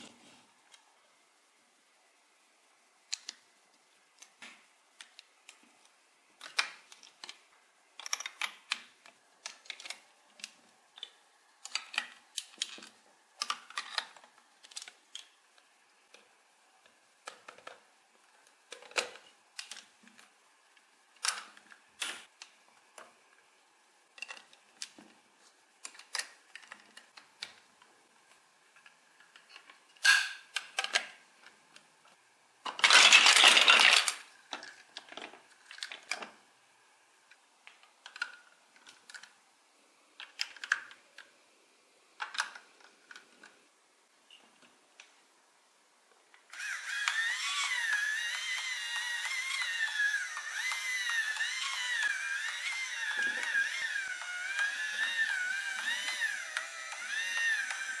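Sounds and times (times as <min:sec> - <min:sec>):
plastic bricks clicking: 0:03.1 - 0:03.4, 0:04.2 - 0:07.4, 0:08.0 - 0:15.4, 0:24.1 - 0:25.0, 0:25.8 - 0:27.7, 0:32.6 - 0:36.4, 0:37.7 - 0:39.4, 0:40.2 - 0:41.3, 0:42.2 - 0:43.5, 0:46.6 - 0:58.0
plastic bricks rattling clatter: 0:32.7 - 0:36.4.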